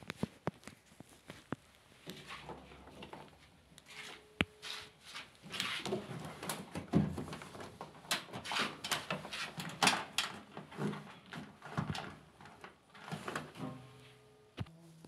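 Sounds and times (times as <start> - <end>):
hand rummaging plastic and metal parts: 5.4 - 13.9.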